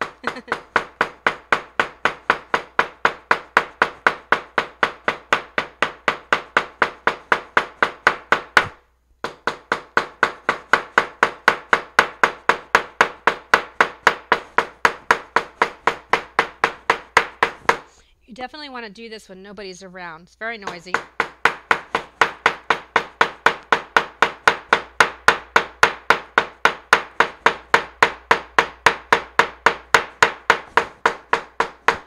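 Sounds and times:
hammer tapping on paper: 0.0s - 17.9s, 20.6s - 32.0s.

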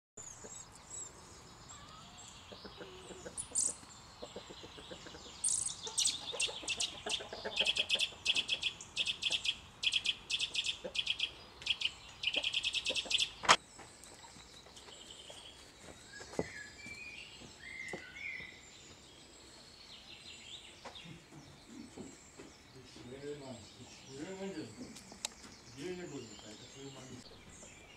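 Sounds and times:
bird alarm calls: 2.6s - 13.6s.

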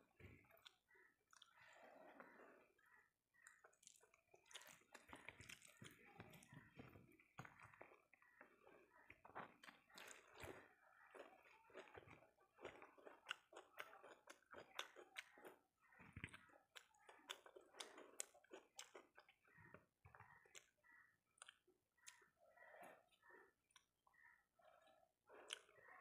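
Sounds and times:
person chewing and lip-smacking: 3.4s - 6.5s, 7.3s - 22.3s, 23.7s - 25.8s.

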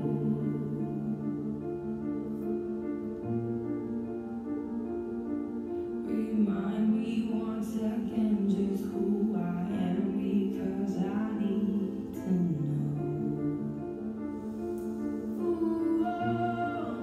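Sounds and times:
woman singing: 0.0s - 1.6s, 6.0s - 13.6s, 15.2s - 17.0s.

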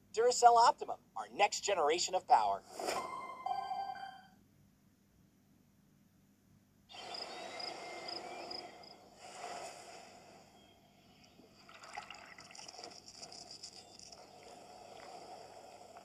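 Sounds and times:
oats trickling into a saucepan: 11.6s - 14.6s
milk pouring from a bottle: 11.6s - 16.0s.

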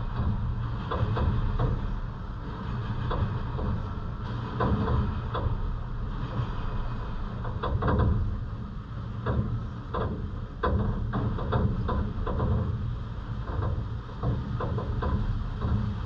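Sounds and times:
wind rumble: 0.0s - 16.0s
raindrops tapping near microphone: 7.5s - 16.0s.

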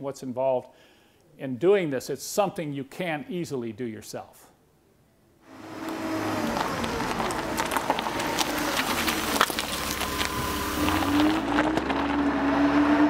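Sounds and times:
vehicle engine running: 5.5s - 13.0s.

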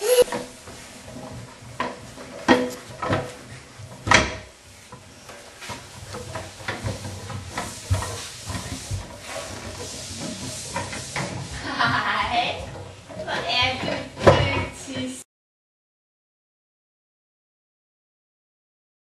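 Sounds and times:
wheels rolling rumble: 0.0s - 15.2s
wooden cart clattering on floorboards: 0.2s - 15.2s.

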